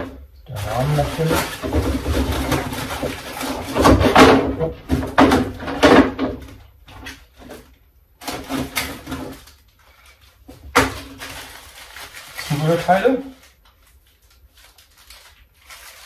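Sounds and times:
plastic bags crinkling: 0.0s - 4.2s, 8.2s - 16.0s.

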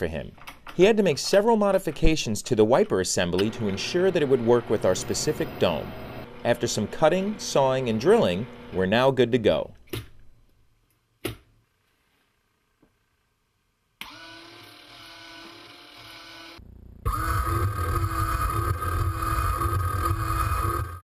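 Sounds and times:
electric wiper motor whining: 3.4s - 8.9s, 14.0s - 21.0s
low rumble: 16.6s - 20.2s.

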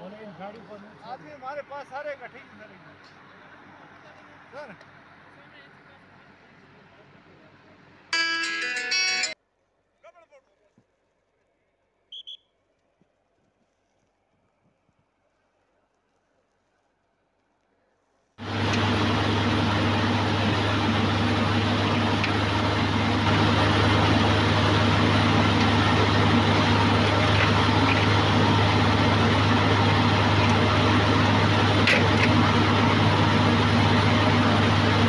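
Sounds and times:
heavy vehicle engine humming: 0.0s - 8.1s, 18.4s - 35.0s.

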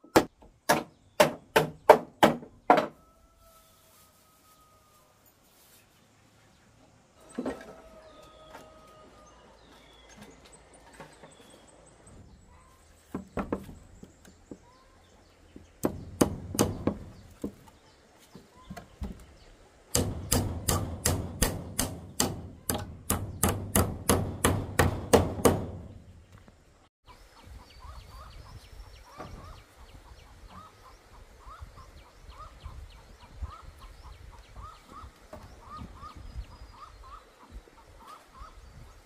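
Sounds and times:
tool striking wood: 0.1s - 3.0s, 15.8s - 17.6s, 19.9s - 26.0s.

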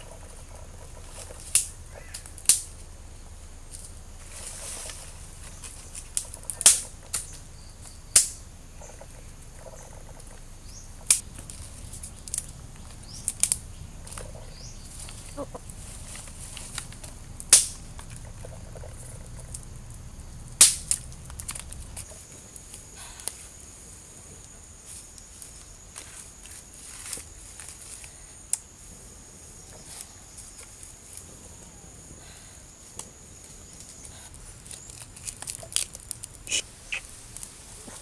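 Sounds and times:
sticks snapping and crackling: 1.0s - 2.9s, 3.7s - 8.4s, 11.0s - 23.4s, 33.8s - 38.0s.

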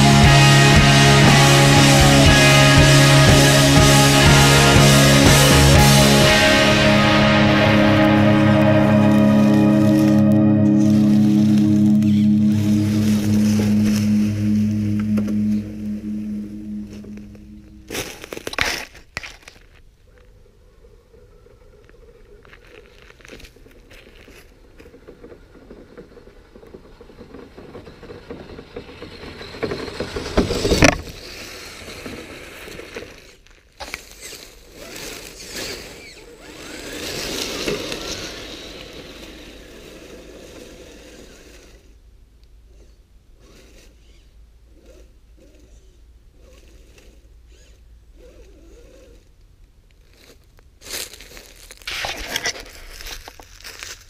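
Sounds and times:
dry leaves crunching under tyres: 17.8s - 20.4s, 21.7s - 24.9s, 31.0s - 41.7s, 49.8s - 54.0s.

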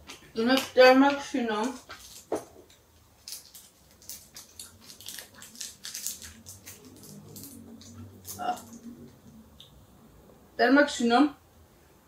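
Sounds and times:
mouth smacks and crunches: 3.2s - 9.0s.

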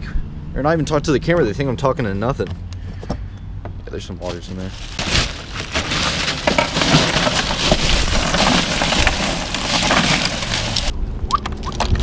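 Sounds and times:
ice and plastic bag crunching: 4.2s - 10.9s.

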